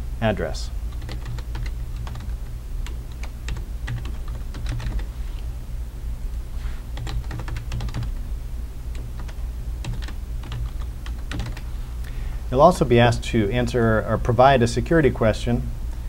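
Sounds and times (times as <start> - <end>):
steady low hum: 0.0 - 16.0
typing on computer keyboard: 0.9 - 5.1, 7.0 - 8.2, 8.9 - 11.7.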